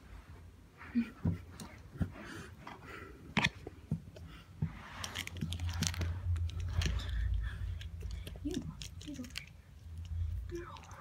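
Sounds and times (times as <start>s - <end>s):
low rumble: 4.9s - 11.0s.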